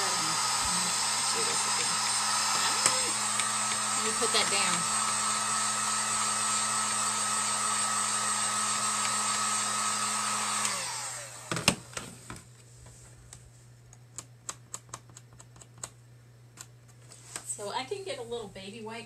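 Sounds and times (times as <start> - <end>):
hot-air dryer blowing: 0.0 - 12.1.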